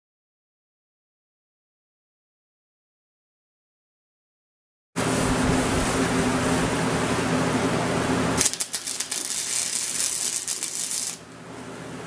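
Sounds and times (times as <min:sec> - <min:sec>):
steady low hum: 0:05.0 - 0:12.0
welder arc crackling and sputtering: 0:08.4 - 0:11.4.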